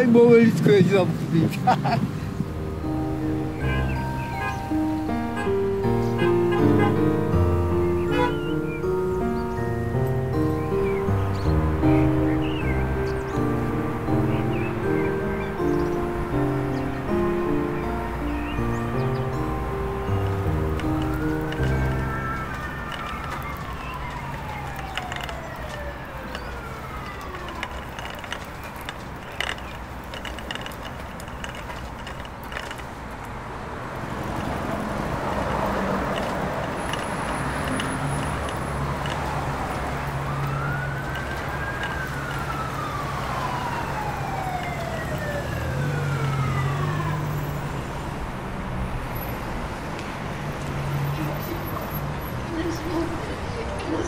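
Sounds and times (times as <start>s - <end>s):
siren wailing: 2.5s - 30.8s, 34.4s - 48.2s.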